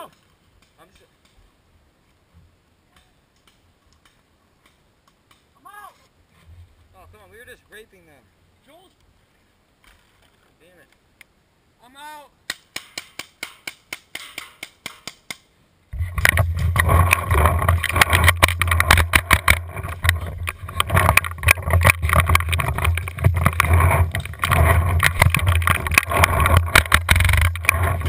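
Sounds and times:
wind noise on camera: 15.9 - 28.0
camera handling knocks and rattles: 16.0 - 28.0.

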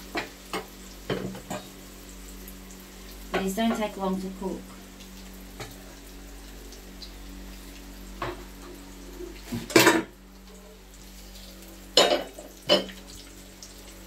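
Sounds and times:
low sizzle of frying: 0.0 - 14.0
metal tongs clanking on frying pan: 12.0 - 13.0.

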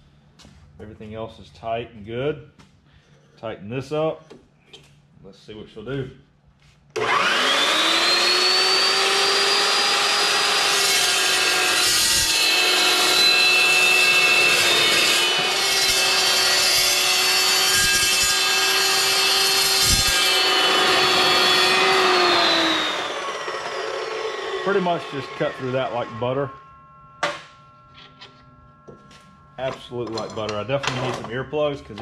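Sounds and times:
metal chop saw cutting steel: 7.0 - 28.3.

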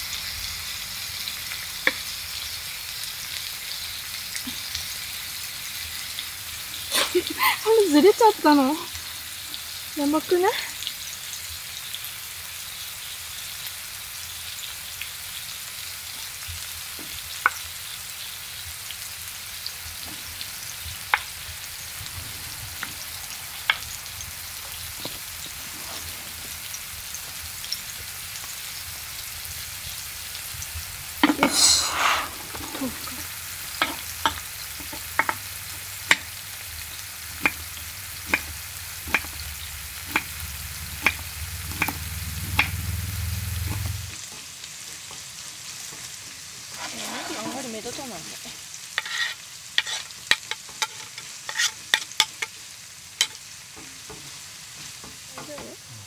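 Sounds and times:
food sizzling in a pan: 0.0 - 56.0
utensil clicking against a pan: 33.8 - 36.3, 37.4 - 43.0, 49.8 - 52.6.

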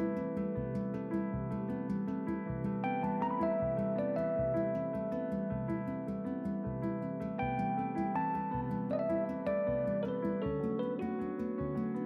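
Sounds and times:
instrumental music with plucked notes: 0.0 - 12.0.

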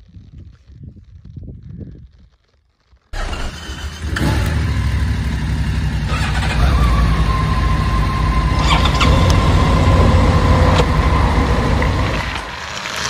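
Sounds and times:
motorcycle engine running: 3.2 - 13.0.

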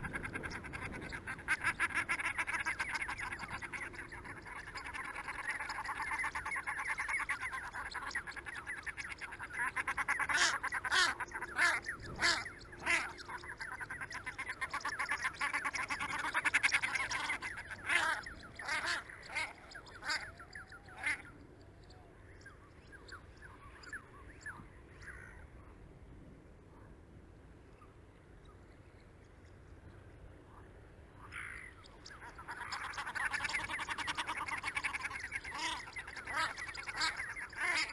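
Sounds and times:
ducks quacking: 0.0 - 21.4, 31.3 - 37.9.

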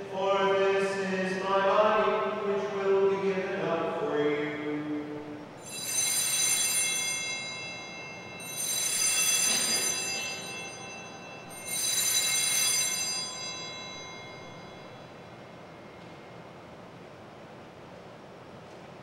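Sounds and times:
altar bells ringing: 5.6 - 16.7.

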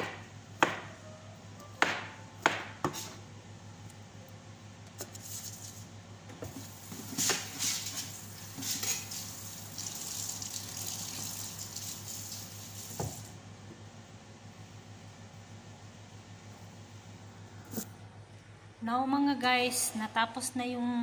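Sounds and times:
tap water splashing: 12.9 - 13.3.

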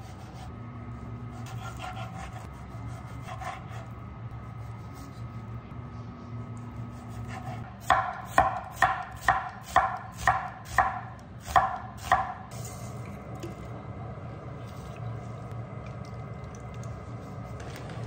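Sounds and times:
knife chopping on wooden board: 7.4 - 12.4.

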